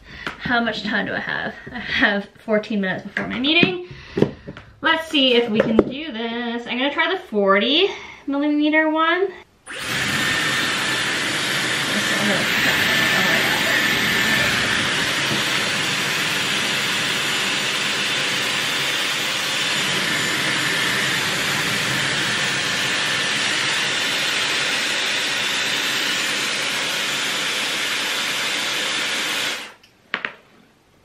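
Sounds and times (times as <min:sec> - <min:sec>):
hair styler air rush: 0:09.7 - 0:29.8.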